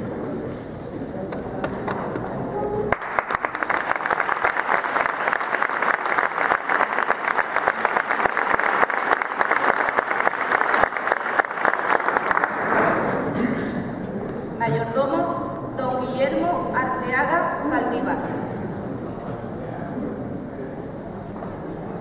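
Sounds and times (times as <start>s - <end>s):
audience applauding: 1.3s - 12.9s.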